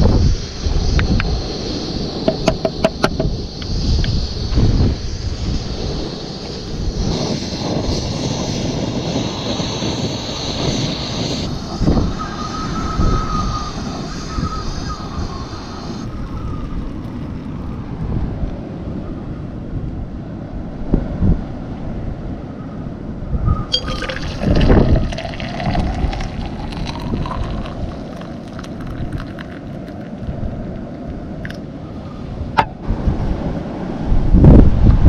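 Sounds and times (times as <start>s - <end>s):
wind rumble on microphone: 0.0s - 35.0s
gas stove hissing: 0.2s - 16.9s
hot water pouring into a cup: 23.7s - 31.6s.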